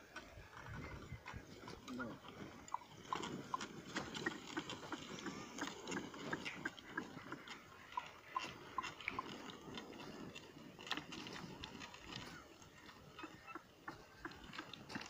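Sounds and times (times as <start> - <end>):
footsteps on stony soil: 0.0 - 15.0
plough scraping through soil: 0.0 - 15.0.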